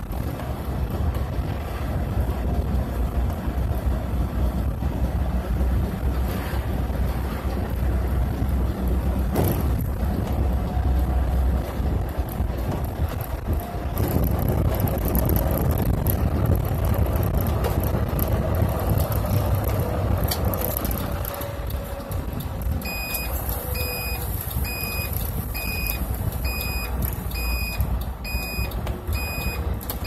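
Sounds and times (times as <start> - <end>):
bus engine and road noise: 0.0 - 30.0
turn signal beeping: 22.7 - 30.0.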